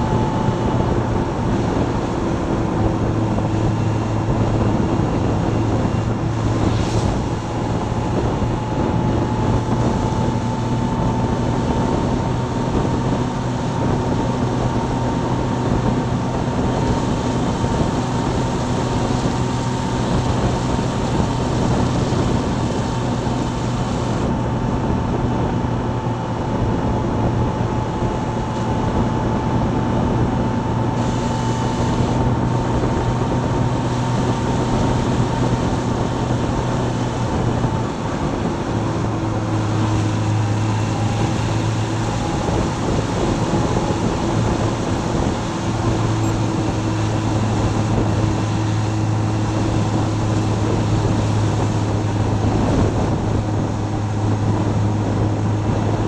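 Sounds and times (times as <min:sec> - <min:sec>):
motorcycle engine cruising: 0:00.0 - 0:56.0
wind rushing: 0:00.0 - 0:56.0.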